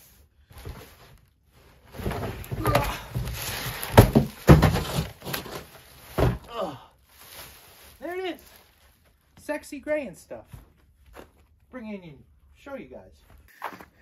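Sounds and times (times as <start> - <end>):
cardboard scraping: 0.5 - 6.4
heavy thumps: 1.9 - 6.5
man grunting with effort: 6.5 - 7.0
plastic wrap crinkling: 7.0 - 9.4.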